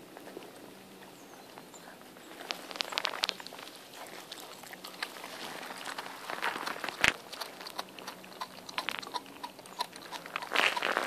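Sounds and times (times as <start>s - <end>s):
dog chewing meat: 2.2s - 11.0s
teeth clicking on meat: 5.8s - 11.0s.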